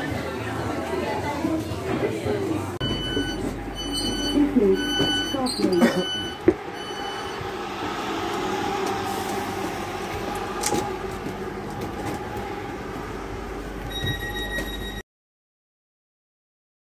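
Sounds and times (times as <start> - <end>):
electric train rumbling: 2.9 - 15.0.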